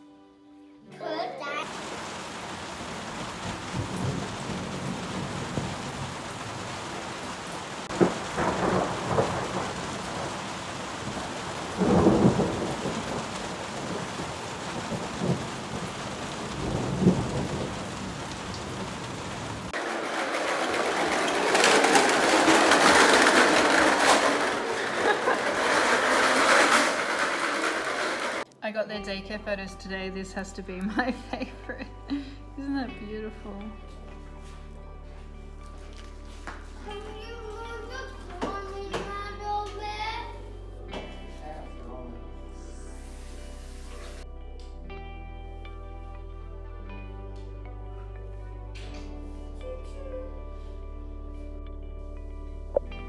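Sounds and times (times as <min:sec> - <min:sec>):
heavy rain: 0:01.6 - 0:28.5, 0:35.9 - 0:39.2
thunder rumbling: 0:01.7 - 0:28.4.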